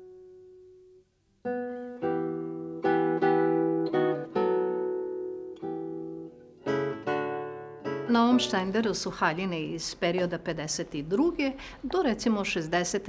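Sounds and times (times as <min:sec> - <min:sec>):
slow plucked guitar notes: 0:00.0 - 0:09.0.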